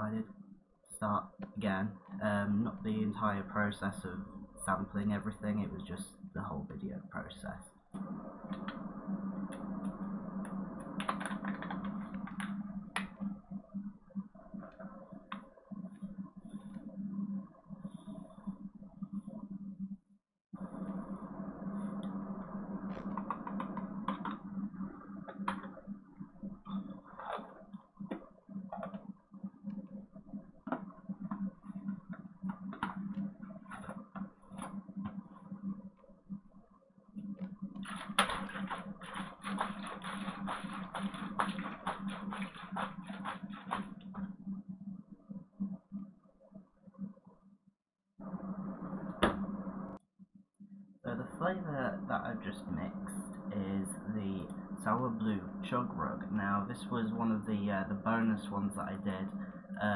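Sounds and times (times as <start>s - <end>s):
steady low hum: 0.0s - 47.6s, 48.2s - 59.9s.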